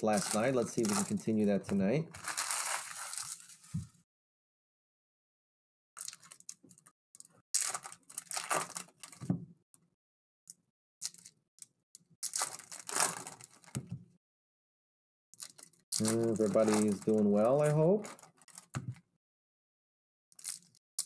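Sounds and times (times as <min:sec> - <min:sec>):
foil wrappers crinkling and tearing: 0:00.0 - 0:01.3, 0:02.1 - 0:03.8, 0:06.0 - 0:06.5, 0:07.6 - 0:09.2, 0:12.2 - 0:13.8, 0:15.4 - 0:18.8, 0:20.4 - 0:20.8.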